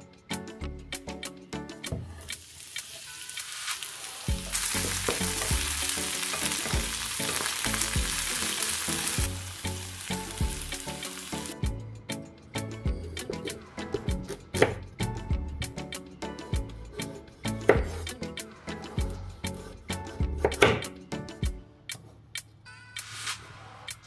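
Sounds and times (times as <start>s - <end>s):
onion sizzling in a frying pan: 2.2s - 11.6s.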